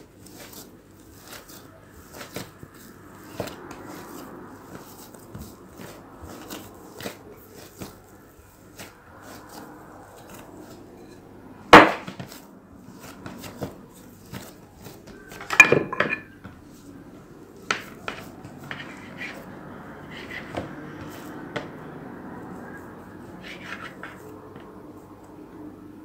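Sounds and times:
dough and knife handling: 0.0 - 25.3
utensils knocking on wooden table: 15.4 - 16.4.

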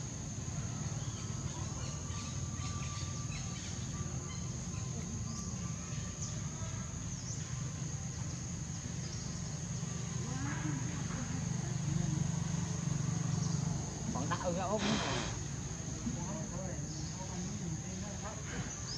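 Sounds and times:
insects droning: 0.0 - 18.9.

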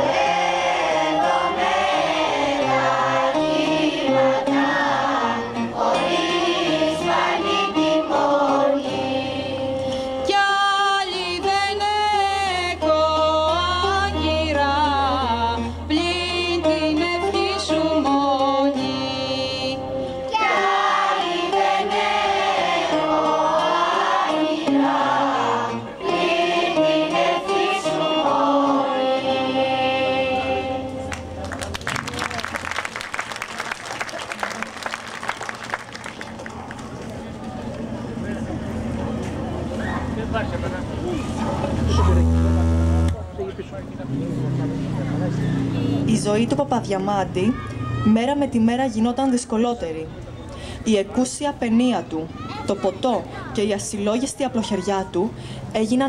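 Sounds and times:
mixed choir singing folk song: 0.0 - 31.1.

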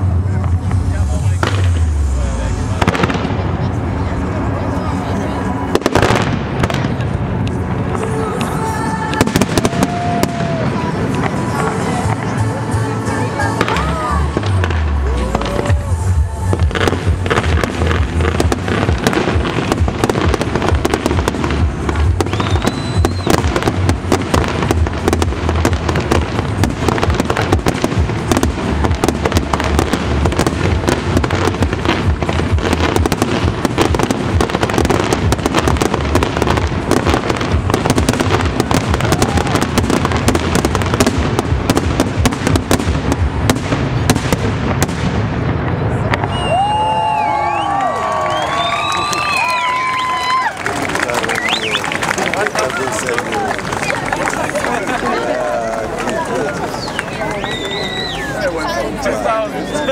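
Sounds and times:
firework shell bursts and crackling: 0.0 - 50.2
high firework whistle: 22.2 - 23.8, 46.2 - 50.5, 51.2 - 52.0, 56.7 - 58.4.

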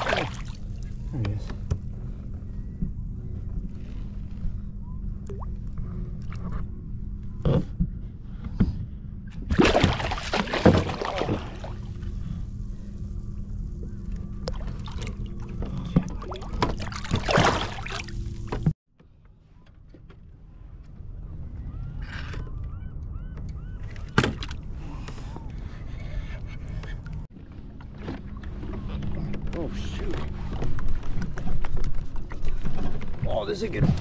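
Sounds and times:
fish thrashing and splashing: 0.0 - 0.7, 9.5 - 12.0, 14.5 - 18.6
steady low rumble: 0.0 - 18.7.

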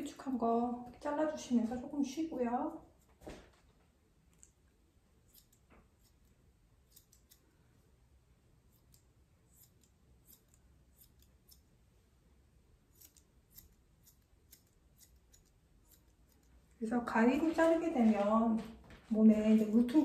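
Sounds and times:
grooming shears snipping: 5.2 - 7.5, 8.7 - 11.7, 12.9 - 18.0.

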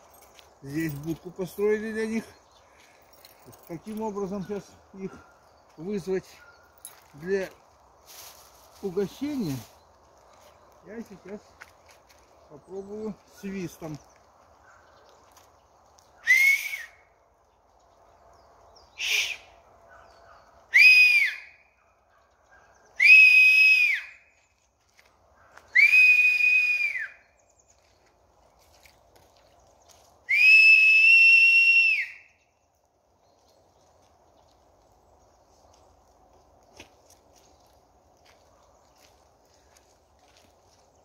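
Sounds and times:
man whistling: 16.2 - 17.0, 19.0 - 19.5, 20.7 - 21.5, 23.0 - 24.1, 25.8 - 27.2, 30.3 - 32.3.

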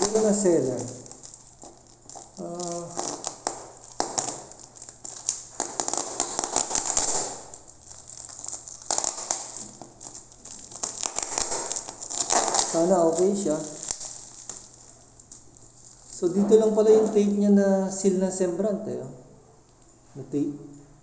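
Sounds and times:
person speaking: 0.0 - 1.3, 2.2 - 3.7, 12.2 - 14.0, 16.1 - 19.3
plastic wrapping crinkling: 0.0 - 17.4.

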